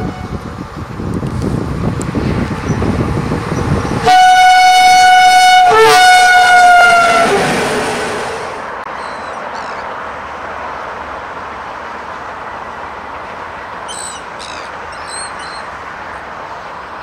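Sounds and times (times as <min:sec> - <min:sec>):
locomotive horn blast: 0:00.0 - 0:00.4, 0:04.0 - 0:08.7
train rumble: 0:00.0 - 0:17.0.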